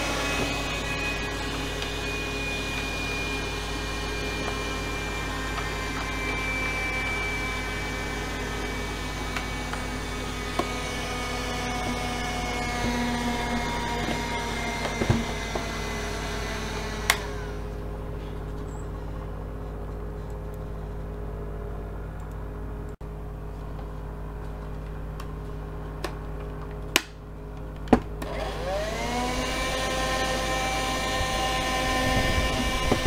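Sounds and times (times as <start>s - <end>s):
hand vacuum motor whine: 0.0s - 19.3s, 28.2s - 33.0s.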